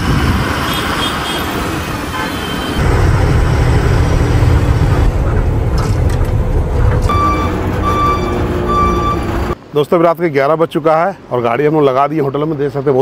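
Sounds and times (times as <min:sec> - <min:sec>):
diesel truck engine rumbling: 0:01.5 - 0:09.6
reversing alarm beeping: 0:07.1 - 0:09.6.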